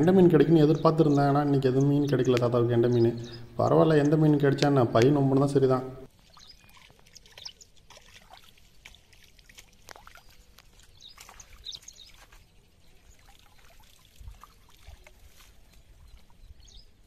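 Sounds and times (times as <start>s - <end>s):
water dripping and trickling: 6.0s - 16.8s
small water splashes: 6.0s - 17.0s.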